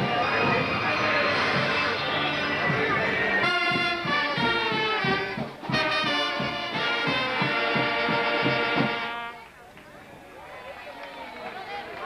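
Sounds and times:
steady drum beat: 0.0 - 9.4
saxophones and brass playing chords: 0.0 - 9.5.

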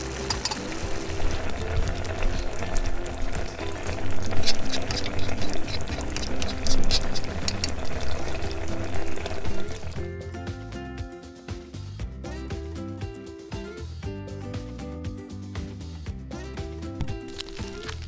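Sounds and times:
sauce bubbling and crackling: 0.0 - 10.0, 17.0 - 18.0
spoon stirring in metal pan: 0.0 - 10.0
background music: 0.0 - 18.0.

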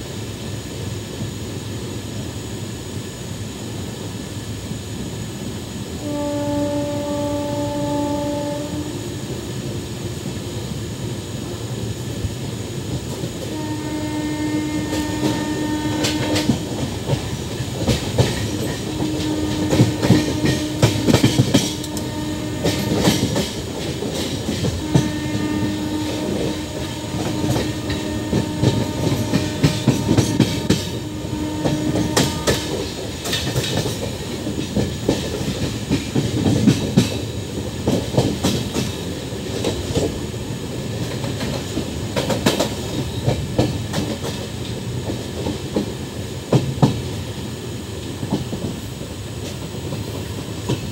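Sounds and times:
train horn blasts: 6.0 - 9.4, 13.4 - 17.2, 18.2 - 23.5, 24.5 - 33.1
train wheels clattering over rails: 9.3 - 50.9.

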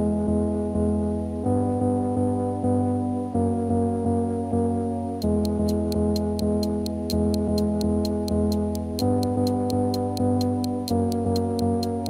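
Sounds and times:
soft sustained keyboard chords: 0.0 - 12.0
light ticking beat: 5.2 - 12.0.

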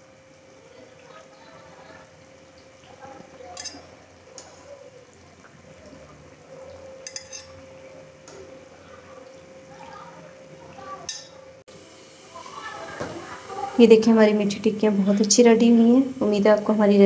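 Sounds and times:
faint steady hum: 0.0 - 17.0
metal spatula clinking on pan: 3.6 - 3.8, 7.0 - 7.5, 11.1 - 11.4.

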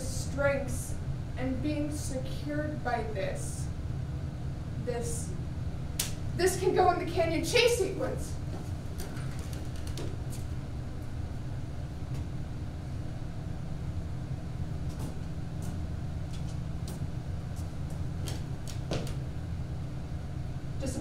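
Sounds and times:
low room rumble: 0.0 - 21.0
footsteps on stage floor: 14.8 - 19.3.

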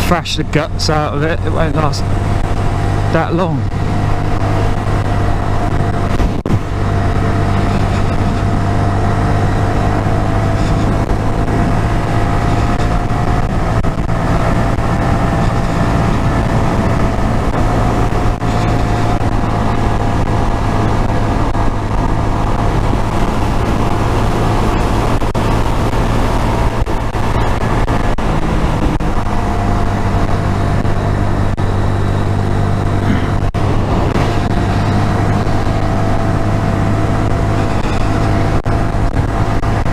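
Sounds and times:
motorcycle engine cruising: 0.0 - 39.9
wind noise on microphone: 1.4 - 39.9.

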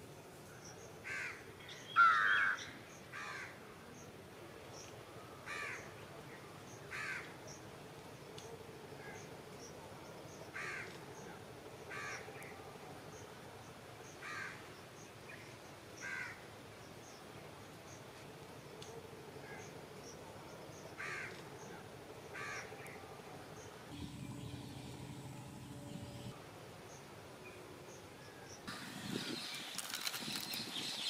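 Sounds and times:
crows cawing: 1.0 - 1.4, 2.0 - 3.6, 5.5 - 5.8, 6.9 - 7.3, 10.6 - 10.9, 11.9 - 12.2, 14.2 - 14.6, 16.0 - 16.4, 21.0 - 21.4, 22.4 - 22.7.

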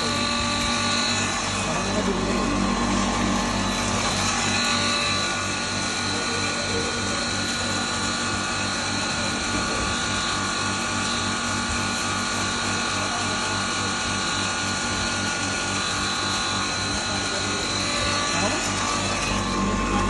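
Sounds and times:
grinder high-pitched whine: 0.0 - 20.0
low pulsing hum: 0.4 - 5.1, 17.8 - 20.0.

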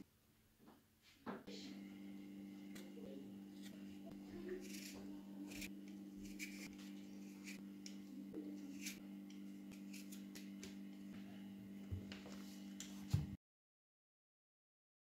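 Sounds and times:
peeler scraping potato skin: 4.6 - 7.6, 8.7 - 9.0, 9.7 - 10.5.

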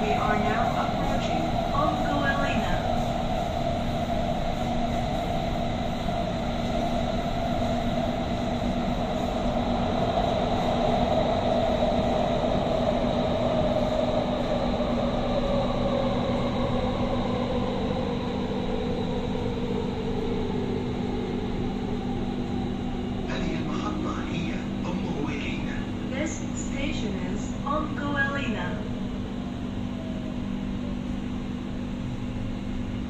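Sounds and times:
train wheels rumbling on rails: 0.0 - 29.7
train whine: 0.0 - 33.0.

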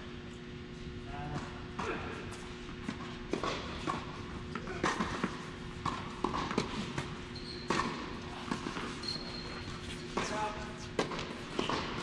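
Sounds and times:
footsteps on tennis court: 1.4 - 12.0
tennis ball impacts: 2.8 - 9.0, 10.1 - 12.0.

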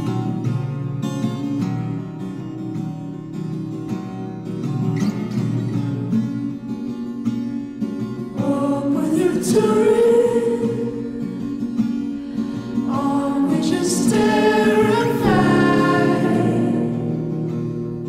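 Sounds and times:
song with sung vocals: 8.4 - 11.4, 12.3 - 17.4.

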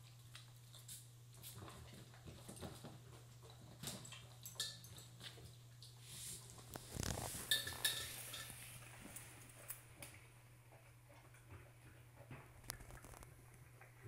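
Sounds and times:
dog eating crunching: 0.0 - 14.0
metal bowl clinking: 7.4 - 8.7.

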